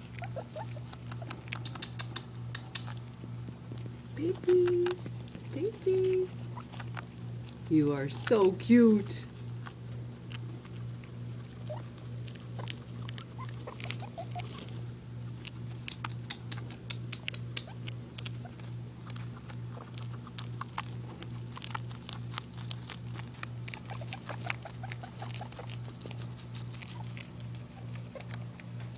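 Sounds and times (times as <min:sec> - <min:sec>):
guinea pigs rustling and nibbling: 0:00.0 - 0:28.9.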